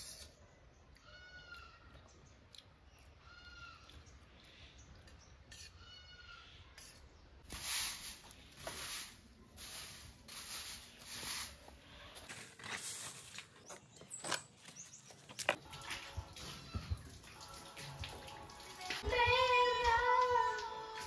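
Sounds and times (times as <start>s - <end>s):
broom sweeping concrete floor: 7.4s - 13.6s.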